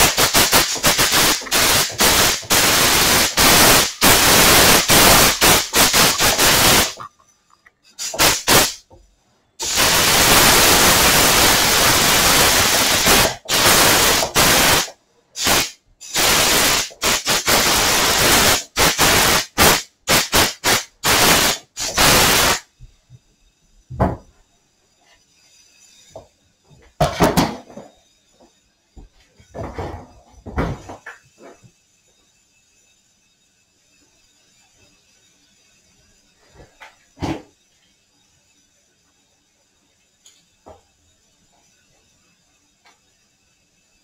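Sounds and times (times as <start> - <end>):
compressed air blow gun hissing: 0.0 - 7.1, 8.0 - 9.0, 9.6 - 24.0.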